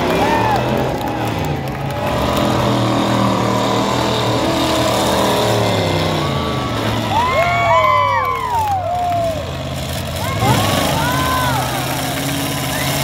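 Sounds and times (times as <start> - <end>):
people whooping: 0.0 - 2.5, 5.4 - 13.0
truck engines revving: 0.0 - 13.0.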